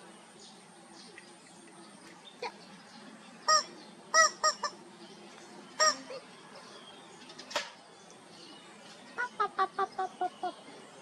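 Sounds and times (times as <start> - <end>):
rubber chicken toy squawking: 4.2 - 4.8.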